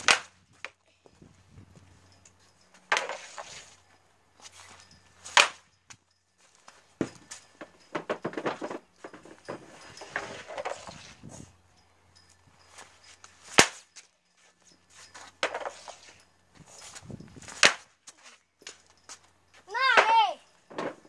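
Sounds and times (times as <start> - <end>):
stick taps and scraping on pavement: 0.0 - 0.8, 2.8 - 3.8, 15.0 - 19.2.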